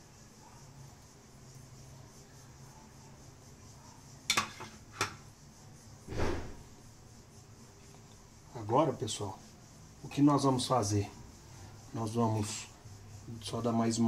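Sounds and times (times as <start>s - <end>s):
dull thump: 6.1s - 6.6s.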